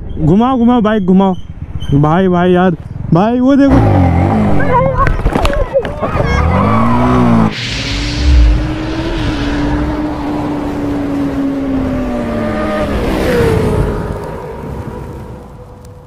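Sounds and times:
engine revving: 0:03.6 - 0:05.0, 0:06.1 - 0:14.0
deep boom with hiss: 0:07.5 - 0:10.6.

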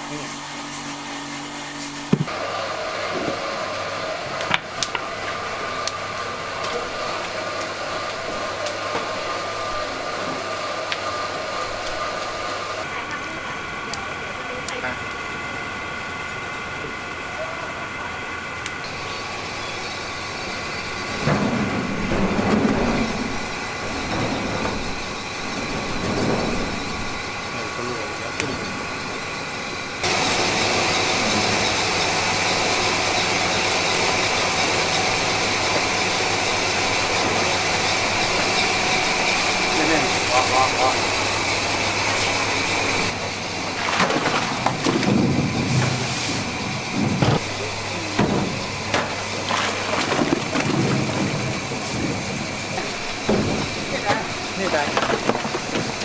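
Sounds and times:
mechanical hum with high whine: 0:00.0 - 0:56.0
splashing water: 0:43.6 - 0:45.4, 0:48.4 - 0:56.0.

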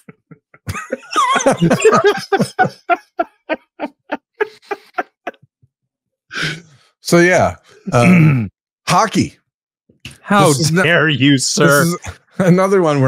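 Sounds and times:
man laughing: 0:00.0 - 0:05.3, 0:11.6 - 0:12.6.

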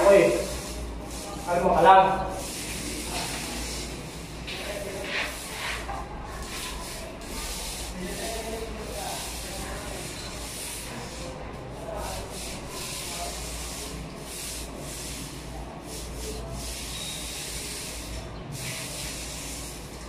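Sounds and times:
paint roller rubbing on surface: 0:00.0 - 0:20.0.

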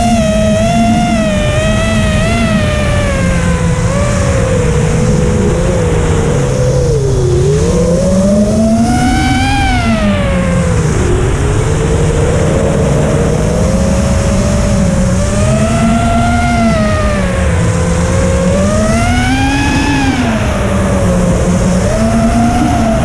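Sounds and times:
rc aircraft motor whining: 0:00.0 - 0:23.0
wind rushing: 0:09.4 - 0:23.0.

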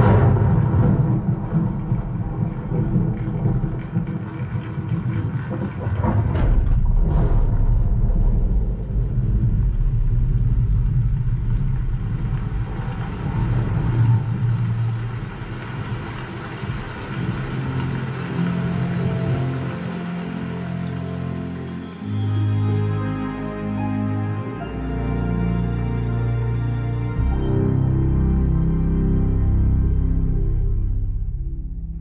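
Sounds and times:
deep rumbling effects: 0:00.0 - 0:21.4, 0:25.4 - 0:32.0
rushing sounds: 0:00.0 - 0:22.9.

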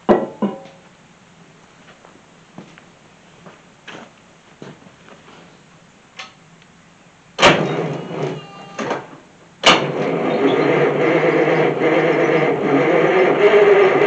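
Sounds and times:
diesel engine starter cranking: 0:07.4 - 0:14.0.

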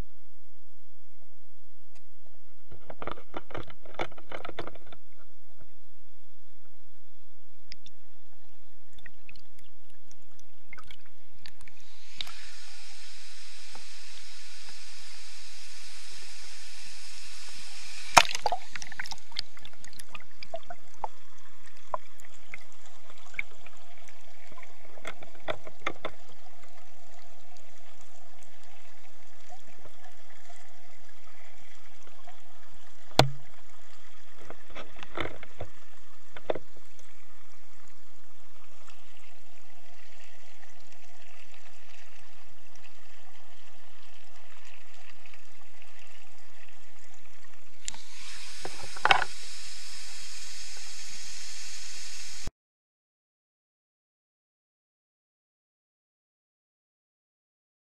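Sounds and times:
muffled underwater water rush: 0:00.0 - 0:52.5.

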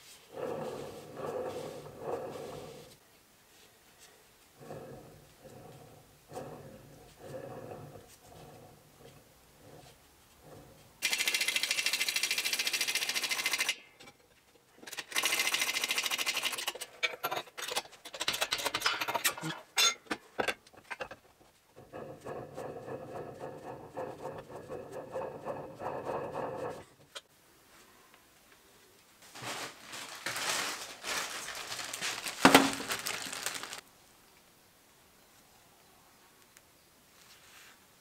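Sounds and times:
hand-held power tool running: 0:11.0 - 0:13.8.

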